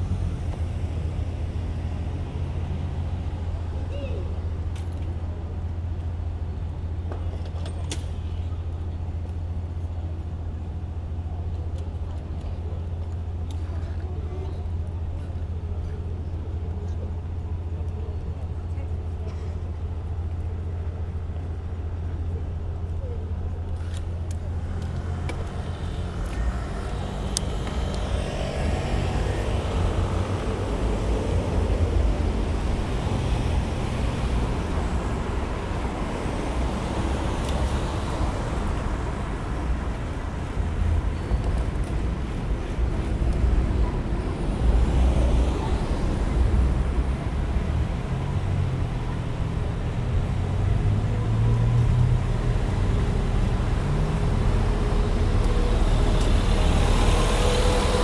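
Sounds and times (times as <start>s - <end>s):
cars passing: 24.2s - 58.0s.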